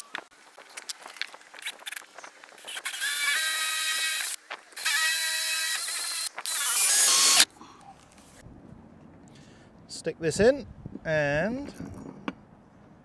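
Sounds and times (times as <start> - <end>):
cordless drill motor whine: 2.6 - 7.5.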